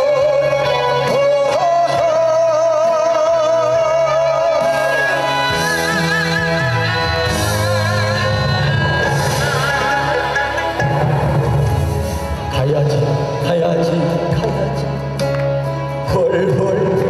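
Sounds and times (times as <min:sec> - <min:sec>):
person singing with vibrato: 0:00.0 - 0:10.9
bass: 0:00.0 - 0:17.0
guitar: 0:00.0 - 0:17.0.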